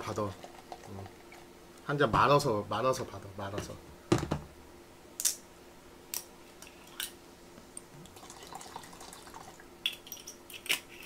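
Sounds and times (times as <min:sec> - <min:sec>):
liquid trickling into cup: 0:00.0 - 0:01.5, 0:08.0 - 0:09.6.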